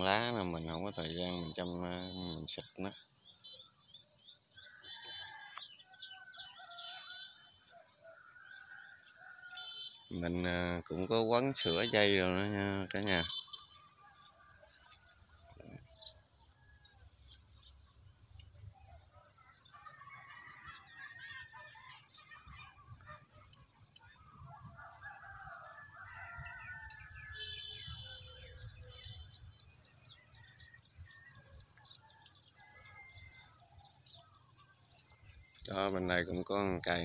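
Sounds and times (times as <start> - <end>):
birds chirping and calling: 0.0 - 37.0.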